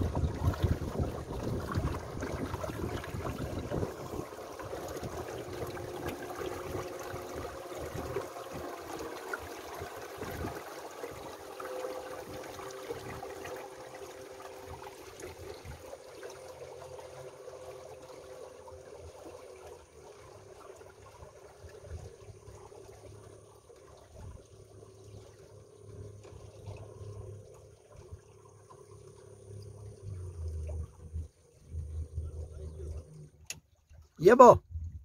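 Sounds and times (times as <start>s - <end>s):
water washing along boat hull: 0.0s - 34.5s
faint two-note hum: 25.0s - 33.6s.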